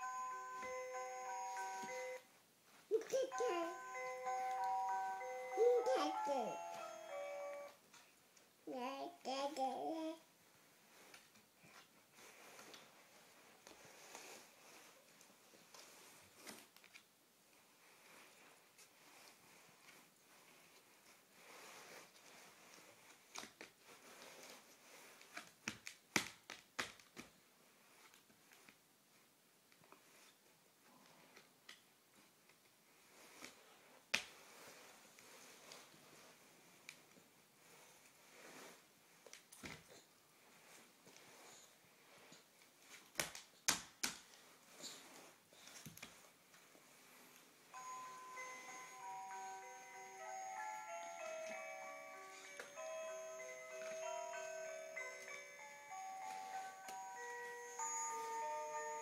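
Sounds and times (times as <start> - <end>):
hands slapping a sound book: 25.4 - 27.3, 43.1 - 44.4.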